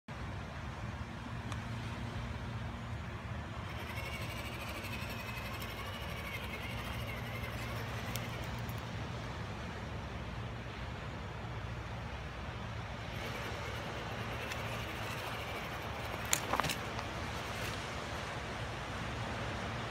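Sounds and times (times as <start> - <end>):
low hum and hiss: 0.1 - 19.9
electric motor whine: 3.6 - 8.7, 13.0 - 17.8.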